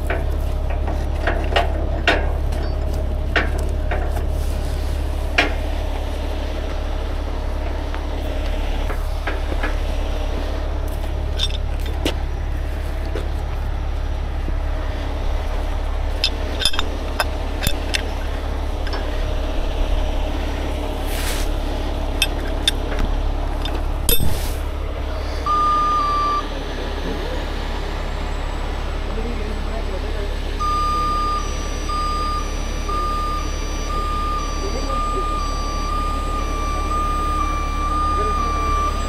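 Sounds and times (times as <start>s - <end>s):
metal clicks and clanks: 0.0s - 4.4s, 10.9s - 12.2s, 16.1s - 19.2s, 22.2s - 24.4s
diesel engine running: 0.0s - 39.0s
electronic beep: 30.6s - 39.0s.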